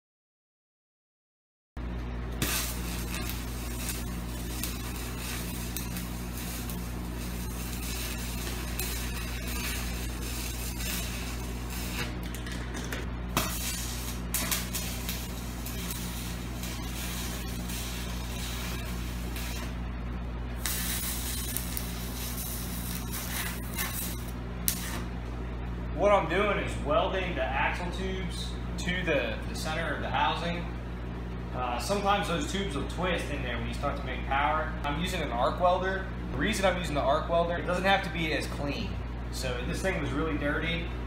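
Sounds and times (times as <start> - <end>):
electrical hum: 1.8 - 41.0
arc welding crackling hiss: 2.2 - 25.3.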